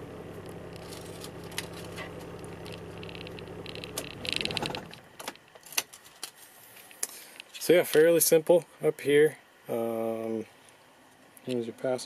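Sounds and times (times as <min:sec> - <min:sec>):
diesel engine idling: 0:00.0 - 0:05.2.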